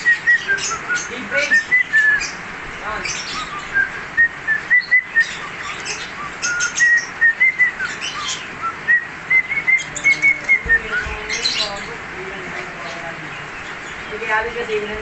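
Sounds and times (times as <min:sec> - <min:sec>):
cockatiel whistling: 0:00.0 - 0:02.4, 0:03.2 - 0:11.5.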